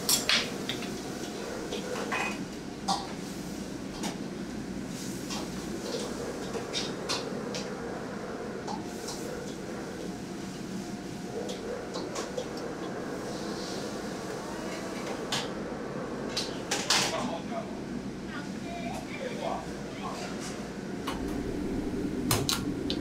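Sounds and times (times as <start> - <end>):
kitchen background hum: 0.0 - 17.6.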